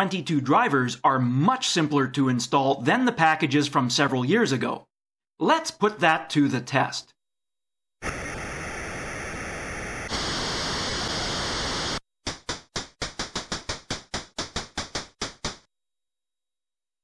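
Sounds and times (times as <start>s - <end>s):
computer hiss: 8.0s - 12.0s.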